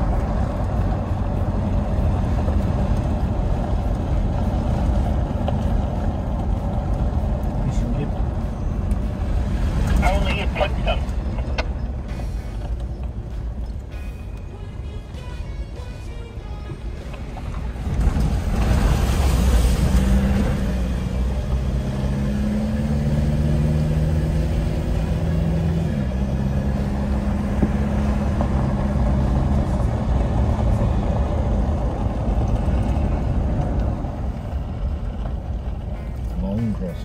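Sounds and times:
road and tyre rumble: 0.0 - 37.0
vehicle engine running: 0.0 - 37.0.

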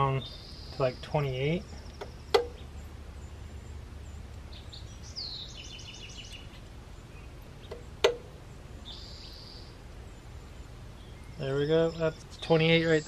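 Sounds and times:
bird chirping and trilling: 0.0 - 13.0
sharp metallic click: 1.9 - 2.6, 7.7 - 8.3.

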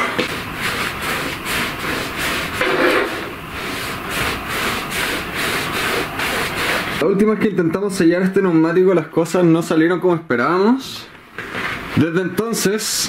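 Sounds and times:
towel rubbing on wood floor: 0.2 - 7.0.

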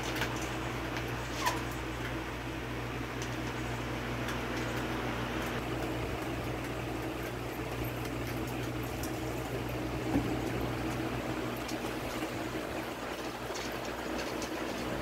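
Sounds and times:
raccoons crunching kibble: 0.0 - 15.0.

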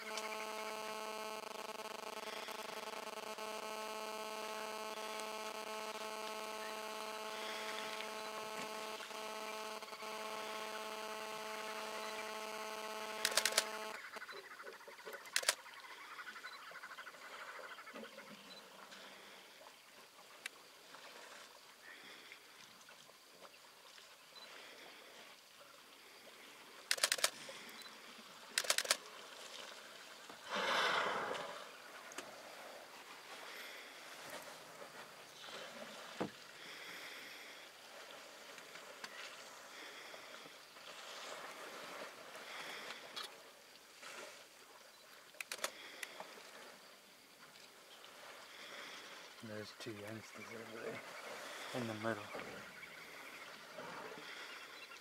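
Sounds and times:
sharp clicks: 4.7 - 14.0, 15.2 - 15.6, 26.9 - 27.4, 28.6 - 29.0, 45.4 - 46.1
rapid clicking: 13.1 - 14.0, 28.6 - 29.0.

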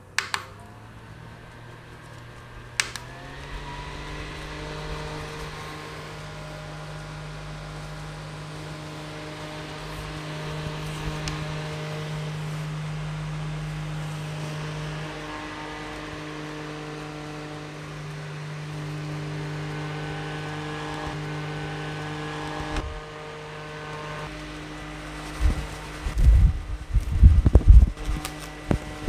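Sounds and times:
fan motor hum with rushing air: 0.0 - 29.0
sharp click: 0.1 - 0.6, 2.1 - 3.2
low rumbling air buffets: 0.7 - 19.7, 22.2 - 23.4, 24.2 - 29.0.

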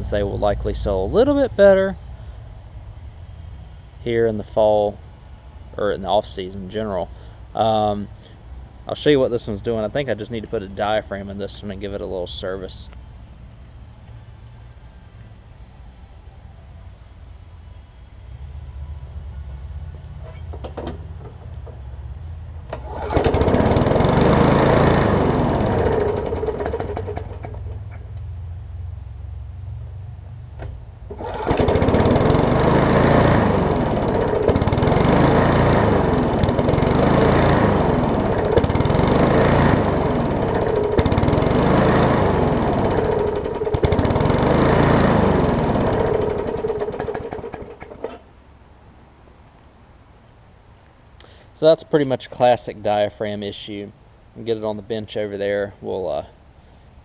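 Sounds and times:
lawn mower engine running unevenly: 22.7 - 27.9, 31.1 - 48.3.

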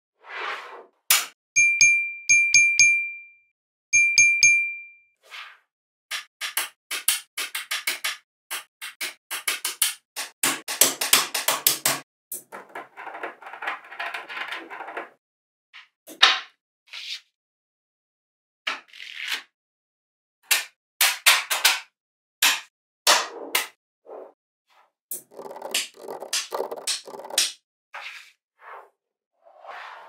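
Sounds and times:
bright ding chimes: 1.6 - 3.4, 4.0 - 5.0
magnetic balls clicking together: 25.2 - 27.5.

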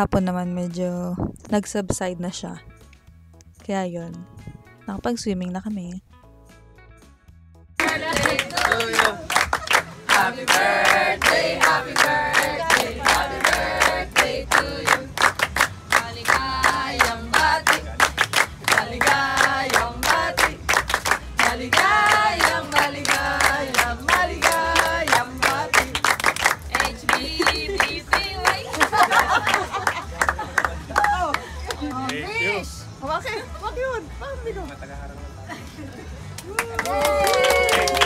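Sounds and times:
group of people singing: 7.8 - 9.3, 10.0 - 29.7
people clapping in time: 7.8 - 32.3, 36.2 - 38.0.

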